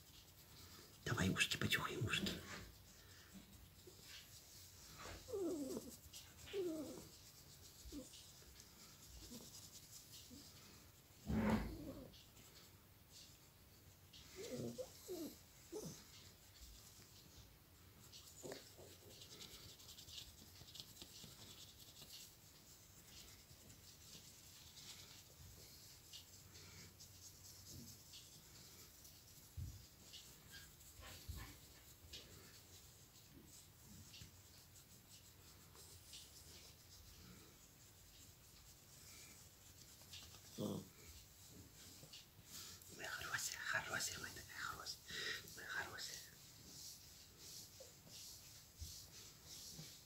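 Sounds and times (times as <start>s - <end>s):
fingers rubbing dog fur: 0.0s - 50.0s
small dog moaning: 5.0s - 7.2s, 11.3s - 12.2s, 14.3s - 16.2s.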